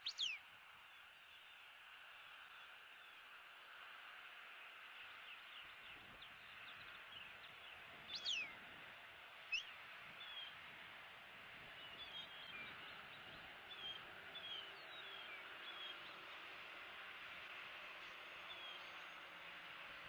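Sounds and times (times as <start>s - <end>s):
sharp high bird calls: 0.0s - 0.4s, 8.1s - 8.5s
small birds chirping: 0.0s - 1.6s, 4.6s - 8.8s, 11.6s - 16.6s.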